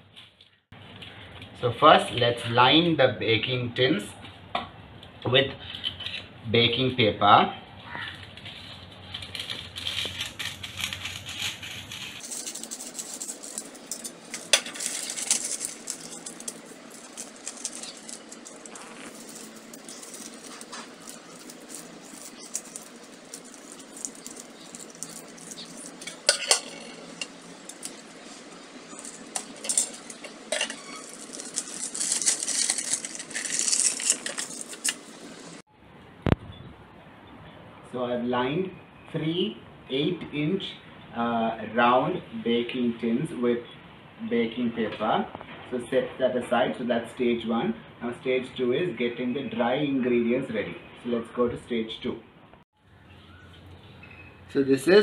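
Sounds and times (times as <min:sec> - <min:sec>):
baking paper crinkling: 0:08.1 - 0:35.6.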